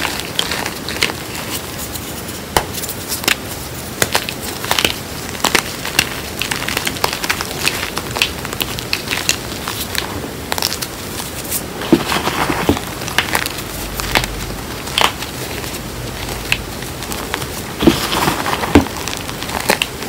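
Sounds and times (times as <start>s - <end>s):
chalk crunching and snapping: 0.0s - 20.0s.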